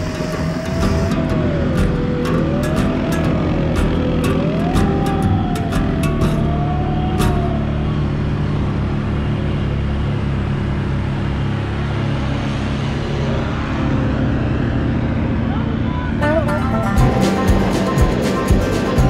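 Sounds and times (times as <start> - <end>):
atv engines running: 0.0 - 19.0.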